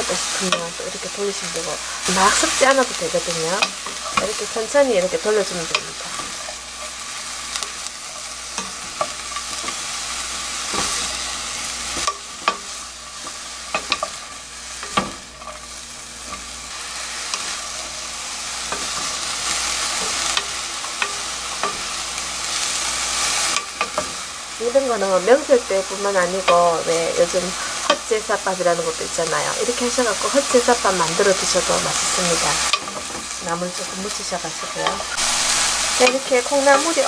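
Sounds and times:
sprouts sizzling in oil: 0.0s - 37.0s
wooden spoon scraping metal pot: 1.6s - 24.2s.

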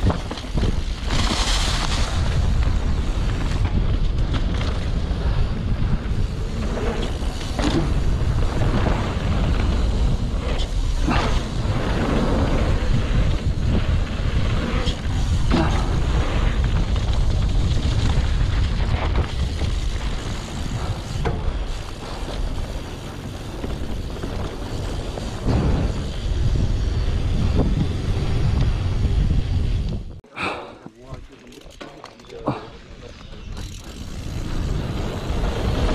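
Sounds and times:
bike knocks and rattles: 0.0s - 29.8s, 30.8s - 35.9s
tyres rumbling on dirt trail: 0.0s - 35.9s
wind buffeting microphone: 1.7s - 30.2s.

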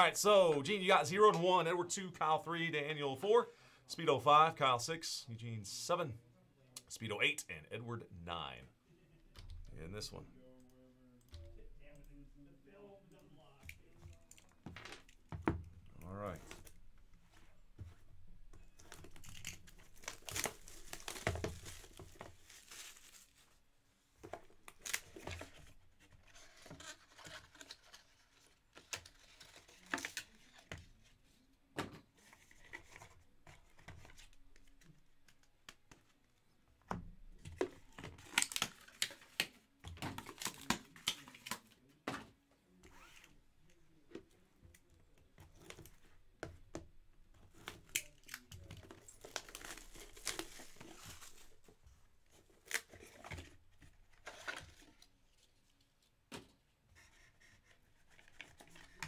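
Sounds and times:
packaging tearing and crinkling: 38.2s - 39.4s, 47.6s - 51.6s.

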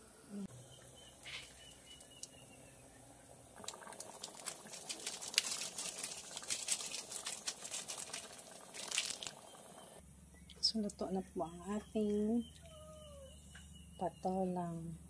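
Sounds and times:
soup boiling and popping: 1.4s - 2.5s, 3.3s - 10.0s.

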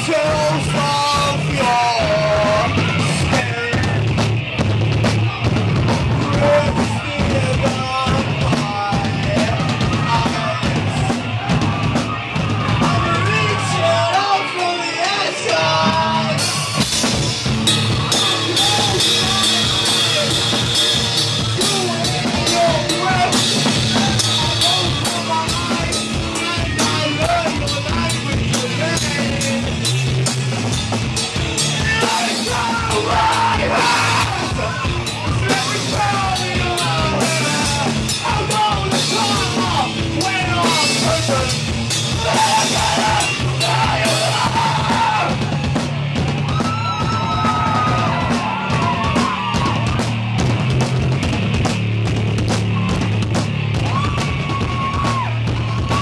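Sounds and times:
drum kit with crashing cymbals: 0.0s - 14.3s, 15.3s - 56.0s
bass guitar: 0.0s - 56.0s
person singing: 42.1s - 45.3s.

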